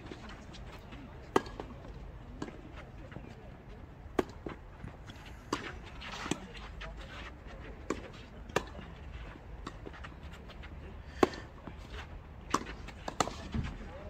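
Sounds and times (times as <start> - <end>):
tennis balls bouncing on court: 0.0 - 3.4, 4.1 - 6.7, 7.8 - 8.9, 12.4 - 13.8
tennis balls struck by rackets: 1.2 - 2.7, 4.1 - 6.6, 7.8 - 8.9, 11.1 - 11.6, 12.4 - 13.8.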